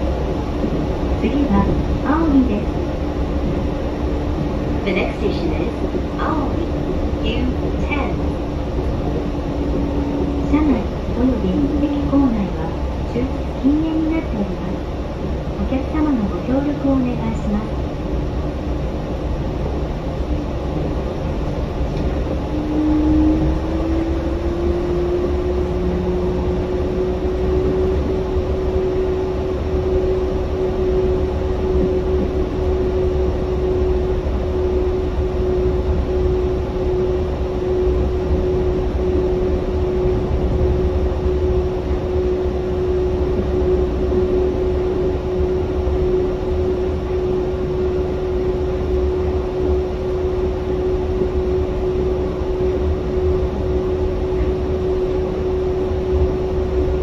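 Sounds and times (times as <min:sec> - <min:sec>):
train running low rumble: 0:00.0 - 0:57.0.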